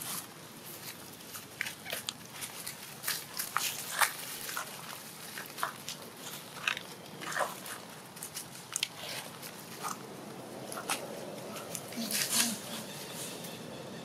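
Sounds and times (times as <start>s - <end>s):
dry leaves crackling and rustling: 0.0s - 13.7s.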